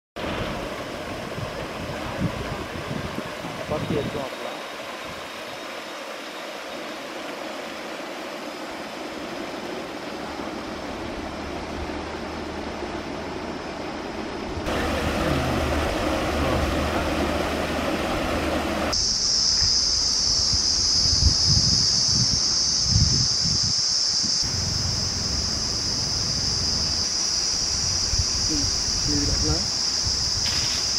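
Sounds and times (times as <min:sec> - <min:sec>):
water rushing over weir: 0:00.2 - 0:19.0
high insect buzz: 0:04.3 - 0:30.9.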